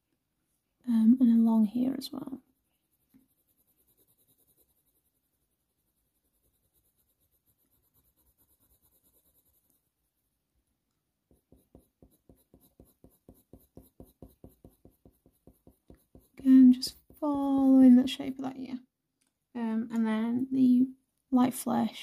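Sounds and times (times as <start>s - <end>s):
pencil scratching on paper: 2.0s - 9.9s, 11.3s - 17.3s.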